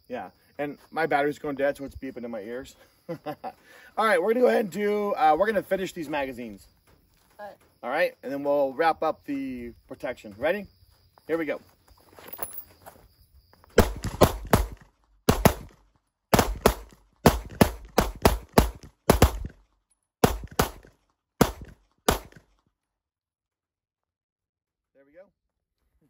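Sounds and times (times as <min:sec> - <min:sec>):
pistol shots: 0:13.8 - 0:19.6, 0:20.2 - 0:22.5.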